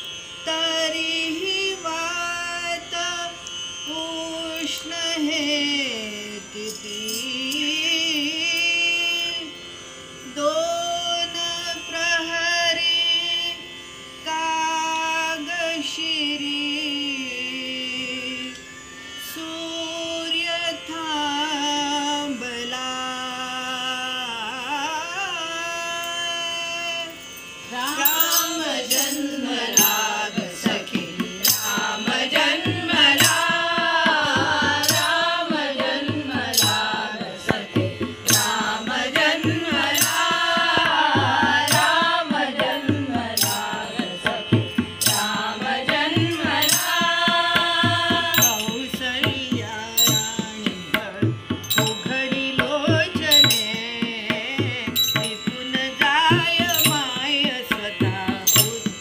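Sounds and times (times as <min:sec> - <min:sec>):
tabla: 0:00.0 - 0:09.6, 0:19.8 - 0:59.0
women singing devotional song: 0:00.0 - 0:09.6, 0:10.2 - 0:18.6, 0:19.2 - 0:59.0
hand cymbals struck: 0:00.9 - 0:09.5, 0:25.9 - 0:59.0.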